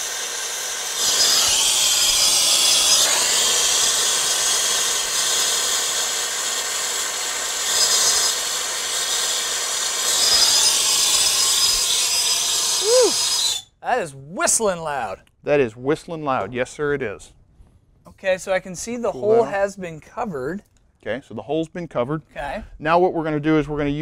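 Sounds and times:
torch flame hissing and whistling: 0:00.0 - 0:13.7.

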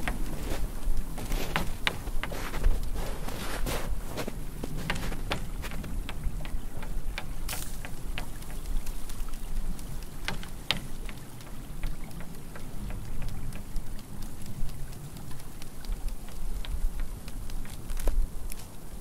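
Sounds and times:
low wind rumble: 0:00.0 - 0:19.0
water drops ticking: 0:05.2 - 0:18.6.

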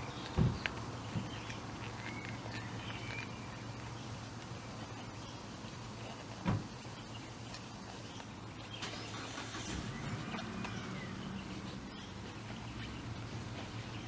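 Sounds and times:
distant engine humming: 0:08.8 - 0:14.0.

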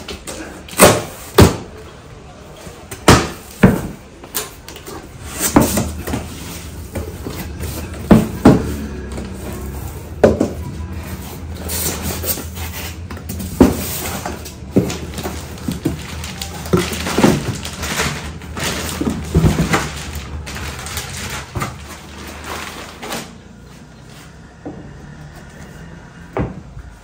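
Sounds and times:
cardboard and plastic rustling: 0:00.0 - 0:24.6
box parts knocking and clattering: 0:02.9 - 0:23.4.

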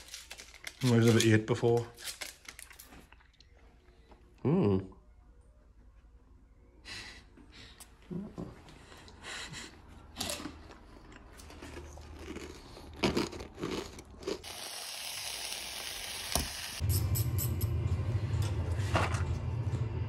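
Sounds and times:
crinkling: 0:00.0 - 0:03.5
sausage sizzling in frying pan: 0:14.4 - 0:16.8
low steady hum: 0:16.8 - 0:20.0.

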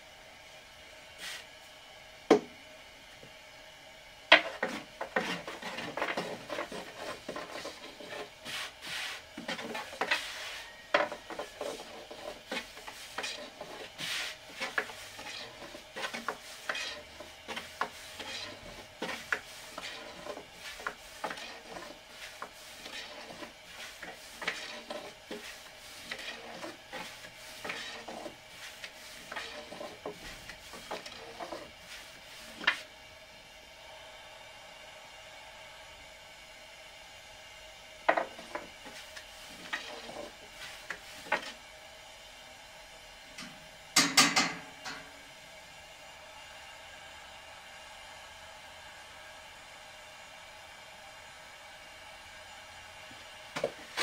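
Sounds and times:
rubbing and scraping: 0:04.3 - 0:32.9, 0:38.2 - 0:41.6.

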